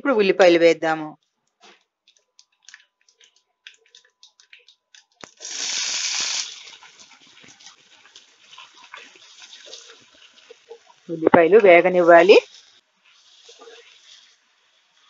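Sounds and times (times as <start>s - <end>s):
seeds popping in hot oil: 1.2s - 15.0s
onions sizzling in oil: 5.2s - 15.0s
metal spoon stirring: 6.8s - 11.0s, 12.1s - 15.0s.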